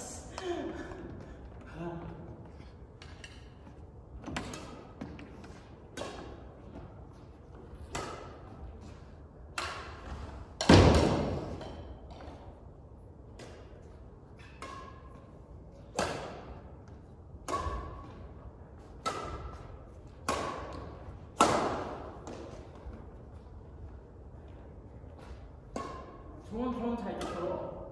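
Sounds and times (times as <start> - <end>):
badminton racket hitting shuttlecock: 3.0 - 6.8, 7.7 - 11.9, 15.8 - 16.8, 17.4 - 22.8.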